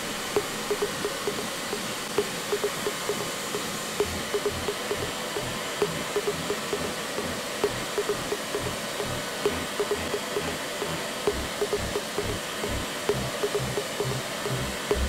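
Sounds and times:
short irregular blips: 4.0s - 15.0s.

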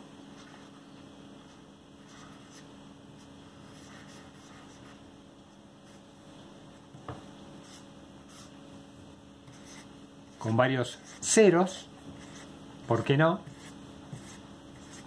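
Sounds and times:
low steady hum: 0.0s - 15.0s
pen scratching on paper: 2.0s - 5.0s, 7.6s - 8.5s, 9.5s - 15.0s.

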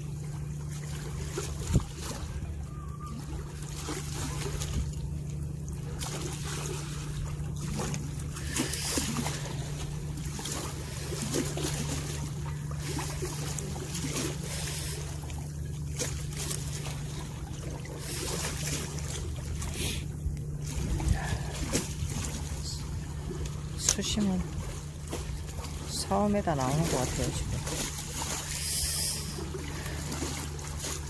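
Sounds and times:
low engine hum: 0.0s - 31.0s
water lapping against rocks: 0.0s - 31.0s.

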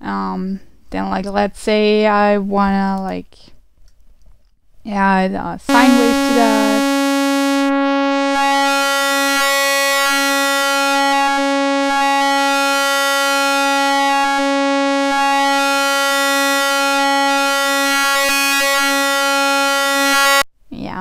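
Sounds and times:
sustained synthesizer tone: 5.7s - 20.4s.

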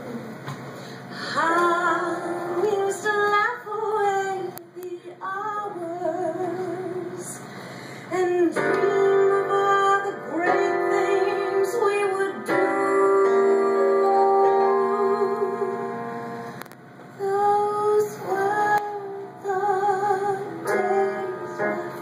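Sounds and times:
woman singing into a microphone: 1.2s - 7.5s, 8.1s - 16.0s, 17.2s - 22.0s
keyboard accompaniment: 1.4s - 3.5s, 8.3s - 22.0s.

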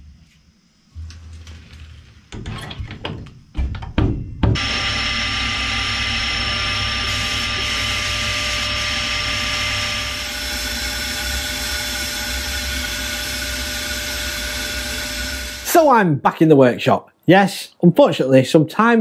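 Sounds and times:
motor whine and drone: 4.6s - 15.7s
compressed air hissing: 4.6s - 15.8s.

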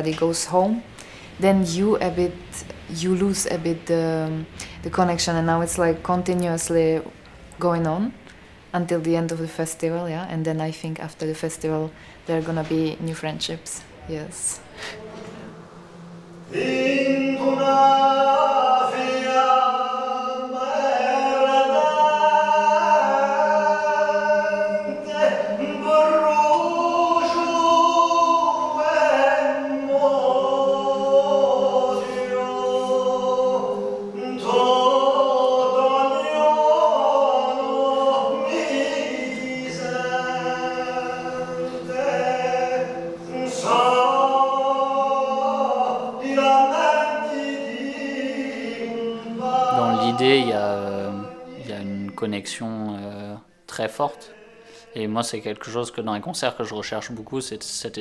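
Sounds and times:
men singing a cappella: 14.8s - 55.8s.

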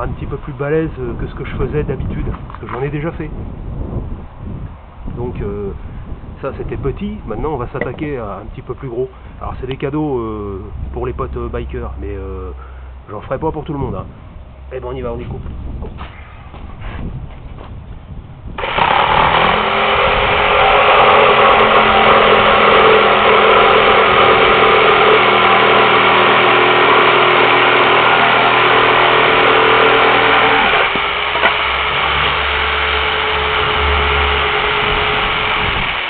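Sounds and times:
electric jigsaw cutting metal: 18.6s - 36.0s.

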